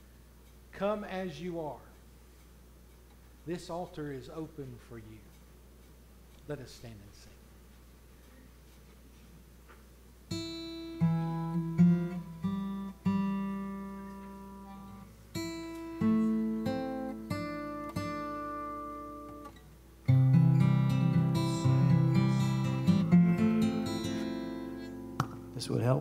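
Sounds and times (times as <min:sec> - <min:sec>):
acoustic guitar picking and strumming: 0:10.3 - 0:25.8.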